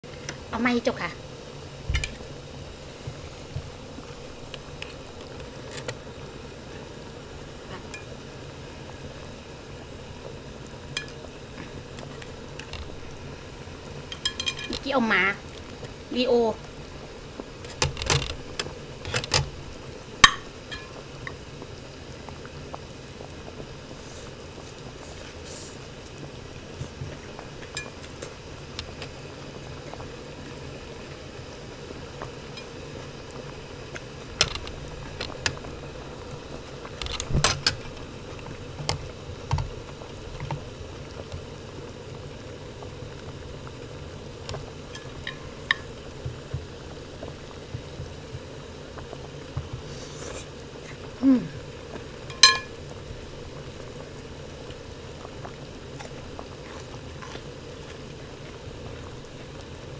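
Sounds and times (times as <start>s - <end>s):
broth bubbling in a pot: 0.0s - 59.9s
utensils clinking against a pot: 14.1s - 14.9s, 20.2s - 21.0s, 52.3s - 52.8s.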